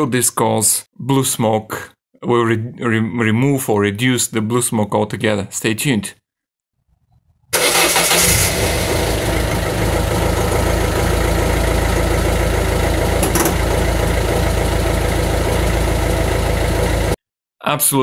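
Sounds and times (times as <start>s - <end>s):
diesel engine starting and idling: 7.5s - 17.2s.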